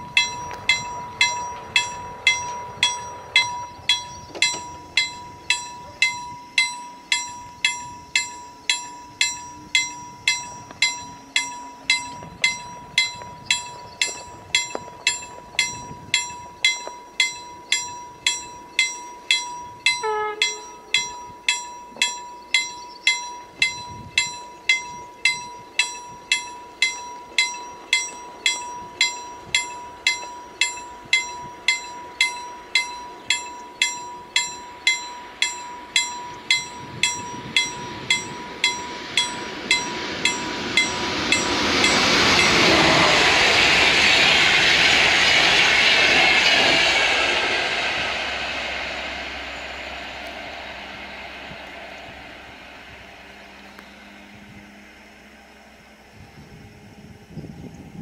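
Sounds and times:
level-crossing bell ringing: 0.0s - 45.7s
passenger train rumble: 0.0s - 58.0s
brief falling tone: 34.4s - 57.7s.

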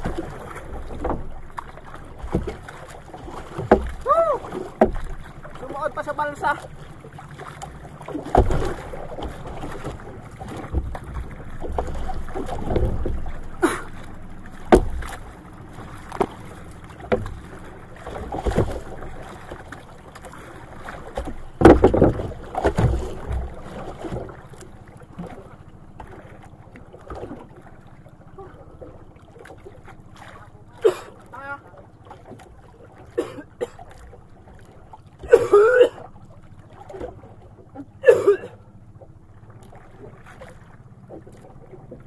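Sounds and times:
water slapping against a boat: 0.0s - 42.0s
knocks on a boat hull: 3.5s - 4.0s, 4.7s - 5.2s, 8.2s - 8.8s, 14.6s - 15.2s, 21.2s - 23.6s.

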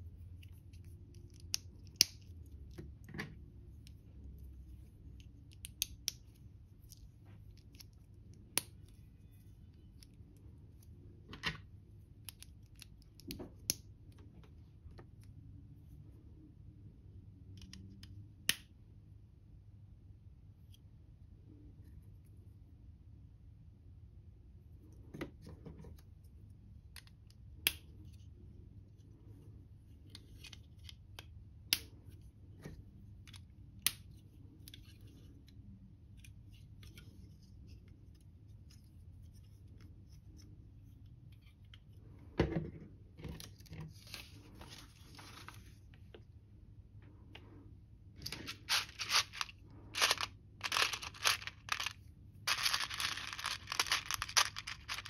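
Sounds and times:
plastic pieces rattling: 48.3s - 55.0s
plastic bricks clicking together: 48.7s - 55.0s.

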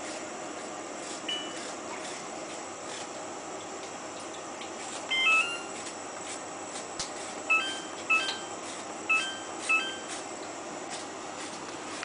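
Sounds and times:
two-note electronic beeps: 7.5s - 8.5s, 9.1s - 10.1s.

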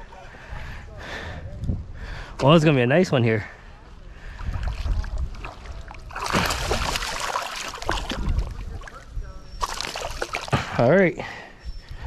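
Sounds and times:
water sloshing: 4.3s - 10.7s
fish thrashing and splashing: 4.6s - 8.9s, 9.6s - 10.6s.

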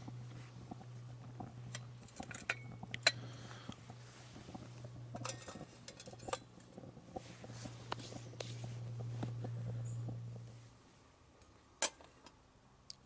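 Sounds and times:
metal pot clinking: 1.7s - 3.2s, 5.1s - 6.6s
metal clatter: 5.2s - 6.5s.

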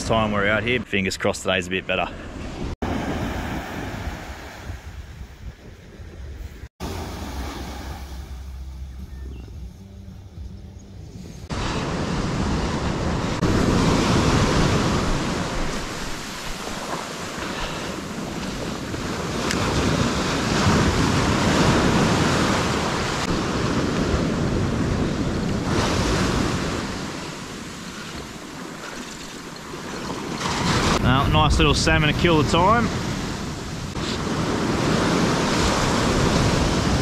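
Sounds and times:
wind buffeting microphone: 2.4s - 6.7s, 10.3s - 37.0s
ocean surf breaking on beach: 6.8s - 8.4s, 11.5s - 37.0s.

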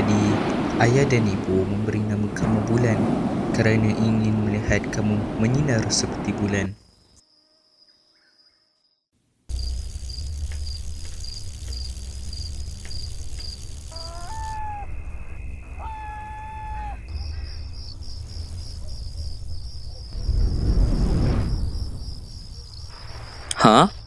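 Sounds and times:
low rumble: 0.0s - 6.6s, 17.0s - 23.4s
crickets chirping: 0.0s - 24.0s.

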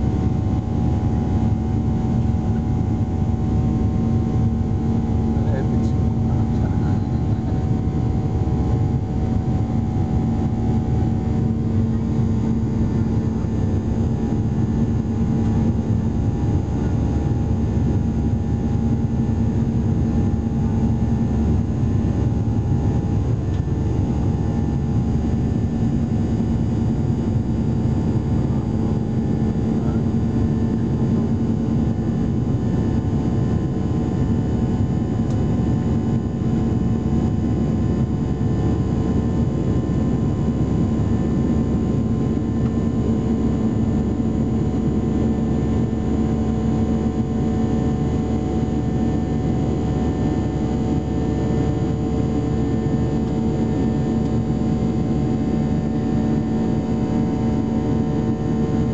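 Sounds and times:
jet engines and airflow rushing: 0.0s - 36.2s
constant cabin hum: 0.0s - 58.9s.

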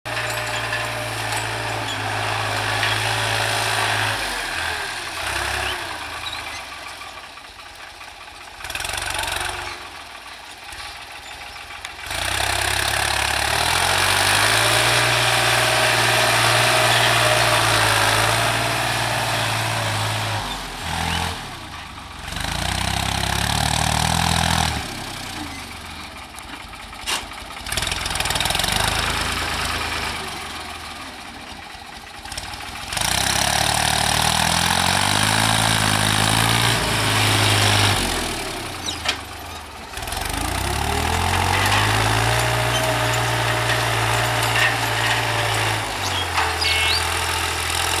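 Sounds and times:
tractor diesel engine running: 0.0s - 48.0s.

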